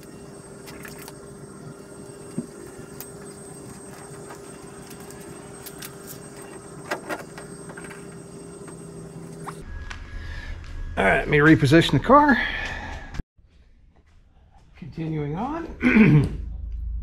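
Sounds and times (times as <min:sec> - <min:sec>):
steady hum: 0:00.0 - 0:13.2.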